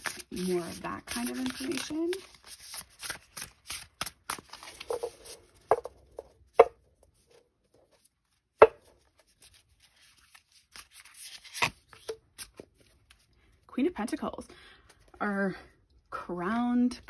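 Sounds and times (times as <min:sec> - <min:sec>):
cards sliding and rustling: 0:00.0 - 0:06.3, 0:07.1 - 0:13.3.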